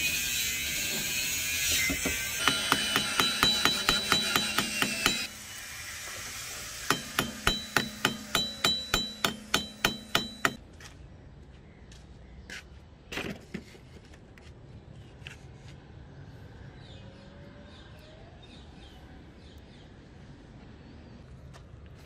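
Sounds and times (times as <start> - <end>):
hammer striking metal with ring: 2.4 - 5.3, 6.8 - 10.6.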